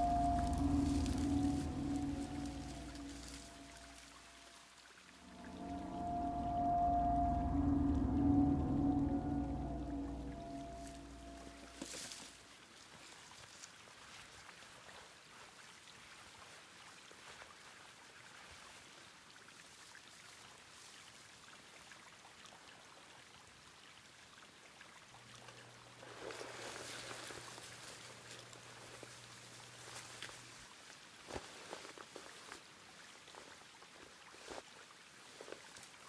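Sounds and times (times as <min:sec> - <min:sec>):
low hum: 0:00.0 - 0:04.5, 0:05.2 - 0:12.2
faint outdoor hiss: 0:00.0 - 0:36.0.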